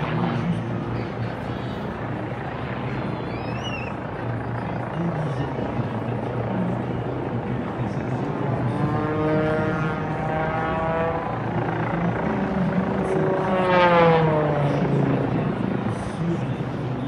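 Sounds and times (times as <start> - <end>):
plane engine and propeller buzzing: 0.0 - 17.0
steady low drone: 0.0 - 17.0.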